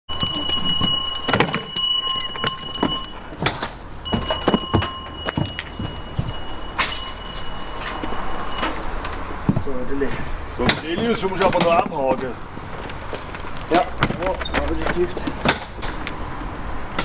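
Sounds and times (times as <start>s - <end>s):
footsteps on metal steps: 0.1s - 16.2s
tuba and case bumping: 0.3s - 7.0s.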